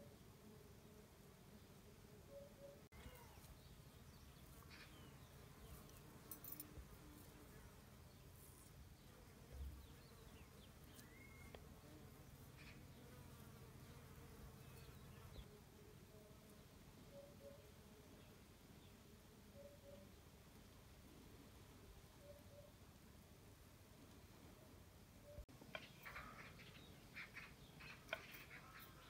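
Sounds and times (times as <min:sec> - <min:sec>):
faint high chirps: 0:02.2 - 0:03.7, 0:10.9 - 0:11.6, 0:17.0 - 0:17.8, 0:19.5 - 0:20.2.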